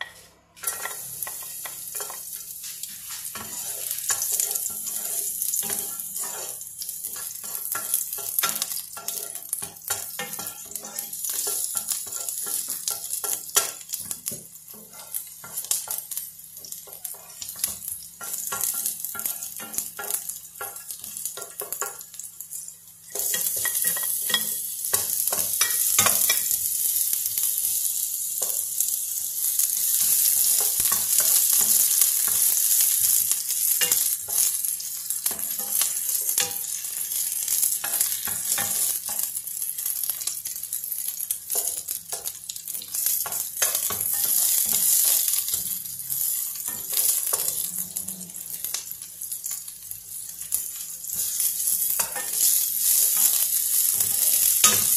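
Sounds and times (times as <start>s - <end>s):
wooden spoon scraping a pan: 0.0s - 13.7s, 14.7s - 16.0s
garlic and onion sizzling in oil: 0.0s - 54.9s.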